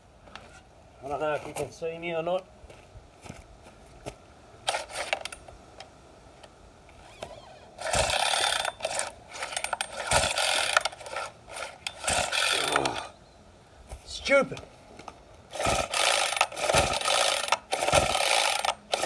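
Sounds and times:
chainsaw pull-start whirr: 4.6s - 5.4s, 6.9s - 13.1s, 15.5s - 19.0s.

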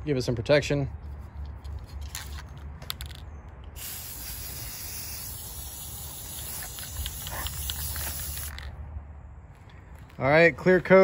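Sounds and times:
aerosol can spraying: 3.8s - 8.6s.

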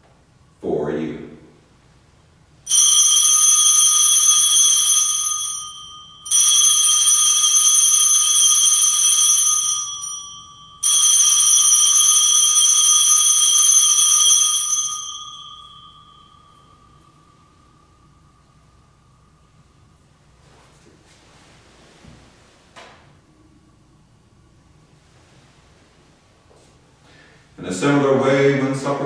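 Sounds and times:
altar bells jingling: 2.7s - 18.6s.

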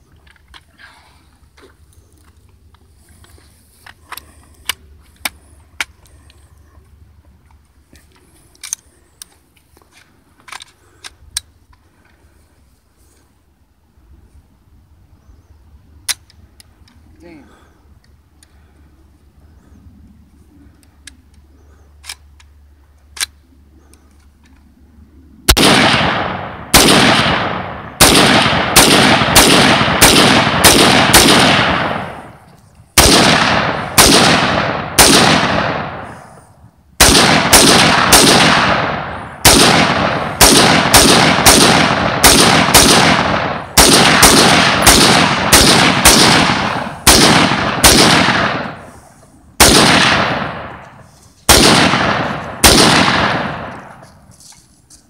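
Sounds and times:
rifle shots echoing: 25.5s - 54.1s.

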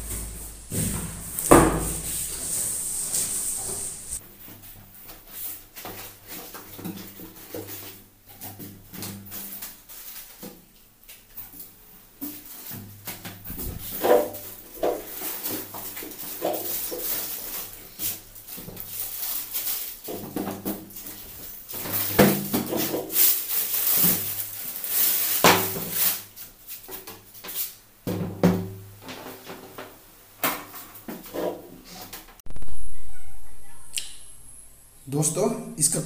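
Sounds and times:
plastic and cardboard crinkling: 12.3s - 27.7s.

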